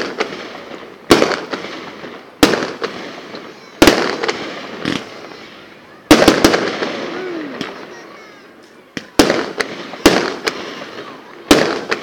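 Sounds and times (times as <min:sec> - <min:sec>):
small firework pops: 0:00.0 - 0:05.4, 0:06.1 - 0:12.0
firework shells bursting: 0:00.0 - 0:12.0.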